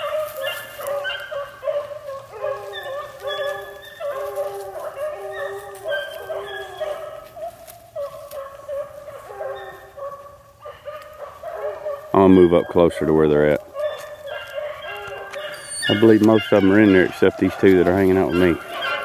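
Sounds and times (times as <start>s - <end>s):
hounds baying: 0.0s - 19.0s
high squeaky hound voice: 14.8s - 19.0s.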